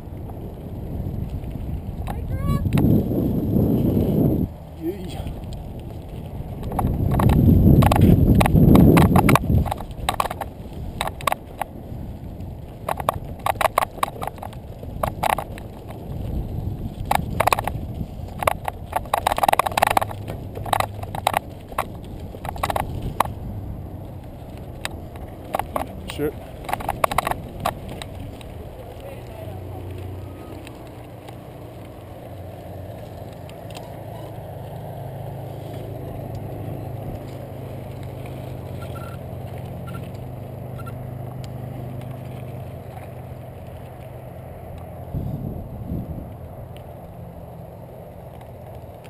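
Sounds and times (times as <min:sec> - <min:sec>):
wind on microphone: 0:00.0 - 0:30.2, 0:45.0 - 0:47.3
bike rattling over stones: 0:00.0 - 0:49.0
tyres on dirt: 0:00.0 - 0:49.0
rushing air: 0:45.0 - 0:46.3.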